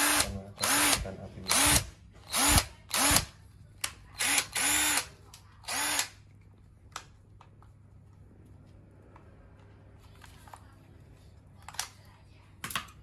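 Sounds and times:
impact driver motor whining: 0.0s - 3.2s, 4.2s - 5.0s.

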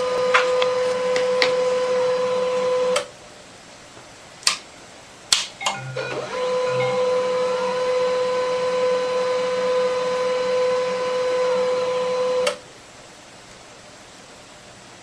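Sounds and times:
printer motor whine: 5.7s - 12.6s.

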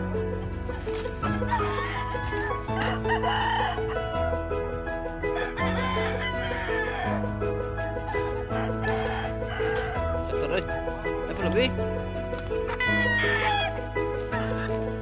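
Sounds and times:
roosters crowing: 0.7s - 4.4s, 5.2s - 7.3s, 8.0s - 10.6s, 12.6s - 15.0s.

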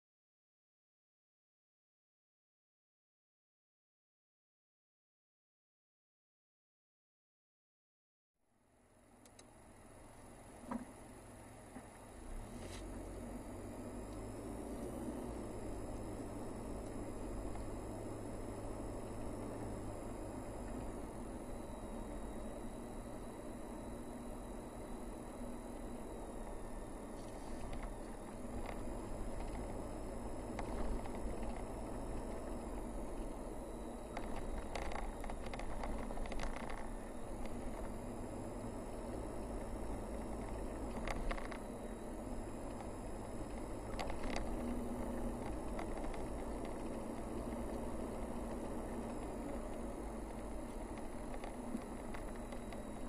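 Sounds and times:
car road noise from inside cabin: 8.7s - 53.0s
faint clicks and rattles: 34.1s - 37.9s, 40.2s - 41.7s, 43.5s - 53.0s.

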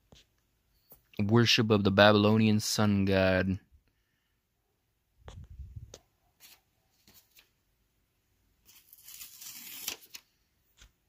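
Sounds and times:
book being handled: 5.3s - 7.6s, 8.6s - 11.0s
paper rustling: 6.4s - 7.6s, 8.6s - 11.0s.

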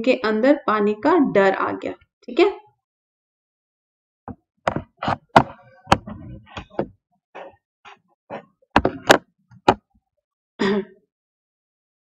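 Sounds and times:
sharp knocks and taps: 4.3s - 7.5s, 8.3s - 9.9s.

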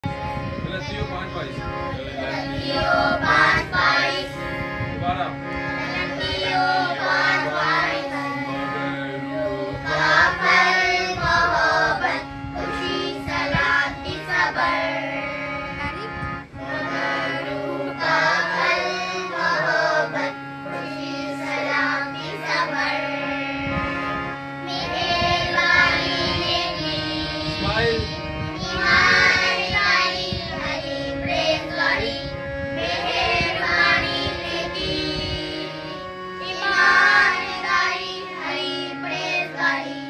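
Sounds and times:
held chords: 0.0s - 40.0s
children singing: 2.1s - 4.4s, 5.7s - 15.6s, 16.6s - 23.6s, 24.6s - 28.0s, 32.8s - 40.0s.

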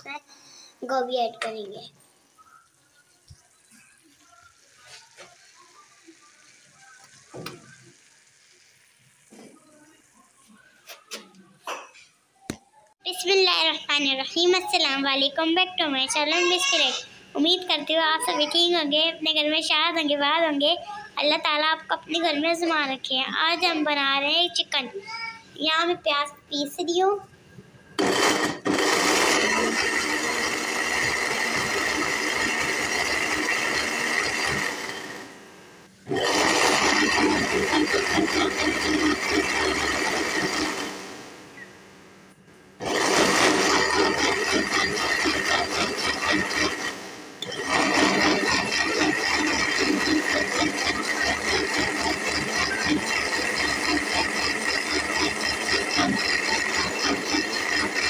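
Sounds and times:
mixer grinder whining: 28.0s - 41.6s, 42.8s - 58.0s.

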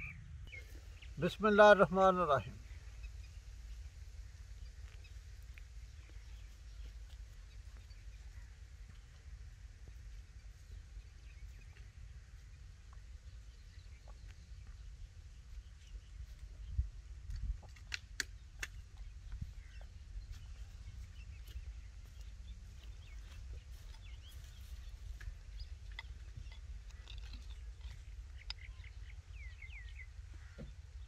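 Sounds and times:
small birds chirping: 0.0s - 31.0s
steady low rumble: 0.0s - 31.0s
sharp clicks: 17.3s - 19.0s.

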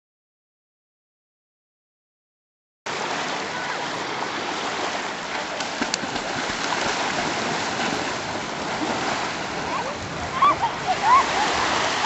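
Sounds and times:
water rushing: 2.9s - 12.0s.

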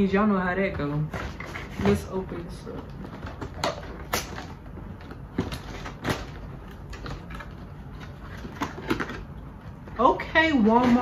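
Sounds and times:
cardboard scraping and snapping: 1.1s - 9.4s.

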